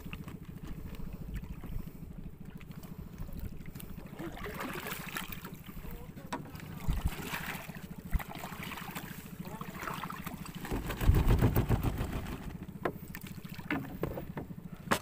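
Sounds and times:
water sloshing around boat hull: 0.0 - 15.0
small engine running: 8.8 - 15.0
sharp knocks on boat: 10.5 - 15.0.

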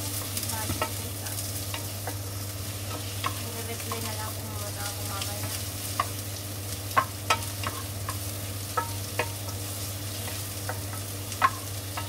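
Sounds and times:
onions sizzling in a frying pan: 0.0 - 12.0
spatula knocking against pan: 6.9 - 9.6, 10.2 - 12.0.

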